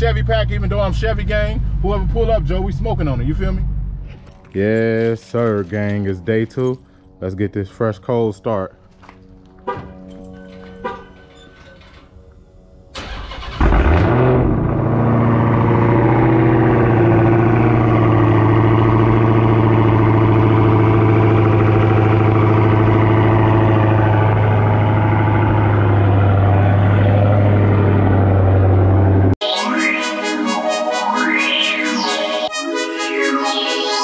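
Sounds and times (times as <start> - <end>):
engine deep idle: 15.4 - 29.0.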